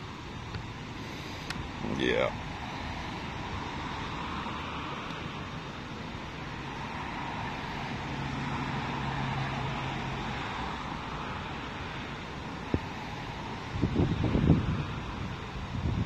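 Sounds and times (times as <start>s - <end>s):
wind on microphone: 12.6s - 16.0s.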